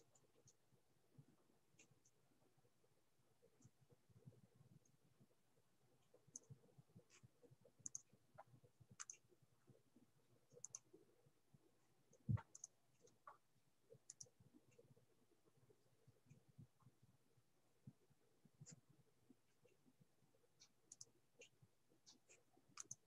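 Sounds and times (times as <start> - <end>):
computer mouse clicks: 6.2 - 8.1, 8.9 - 9.4, 10.5 - 11.0, 12.1 - 14.9, 20.6 - 23.0.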